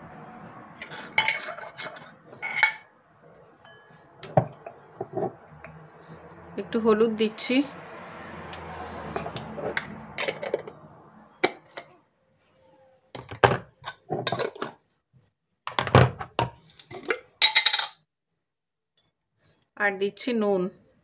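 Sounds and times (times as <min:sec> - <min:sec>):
spice jars and lids clinking: 0:00.8 - 0:02.9.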